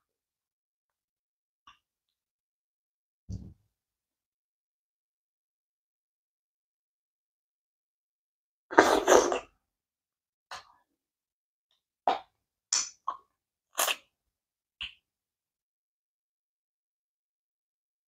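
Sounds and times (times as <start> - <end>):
wet slurp of food: 8.7 - 9.5, 13.8 - 14.1.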